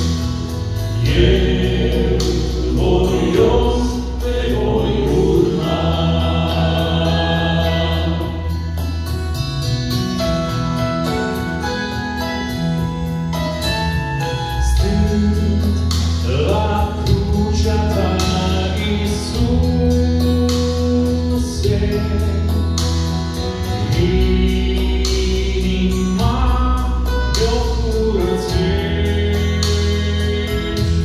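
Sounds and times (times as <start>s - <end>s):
instrumental accompaniment with beat: 0.0s - 31.0s
men singing gospel song: 0.6s - 8.8s, 14.4s - 31.0s.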